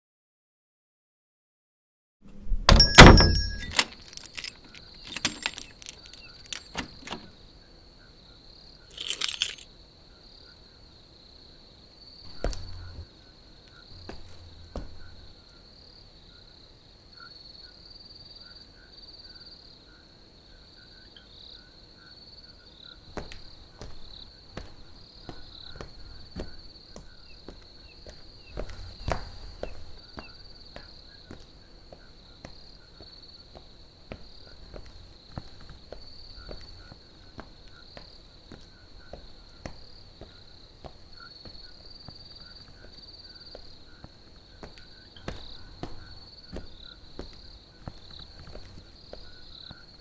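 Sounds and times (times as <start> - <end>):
thud: 2.3 - 3.8, 12.3 - 13.0
footsteps: 2.3 - 7.0, 8.9 - 9.6, 12.3 - 13.1, 13.9 - 15.4, 23.1 - 50.0
short rattle: 2.4 - 6.9
cricket chorus: 2.8 - 50.0.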